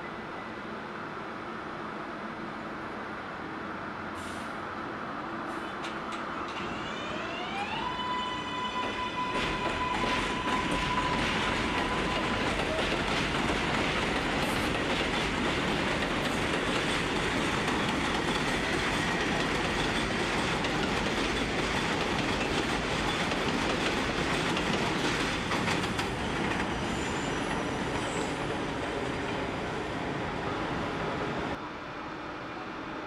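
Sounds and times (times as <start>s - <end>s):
train wheels rumbling on rails: 5.5s - 31.6s
clickety-clack over rail joints: 5.8s - 6.8s, 8.7s - 29.4s.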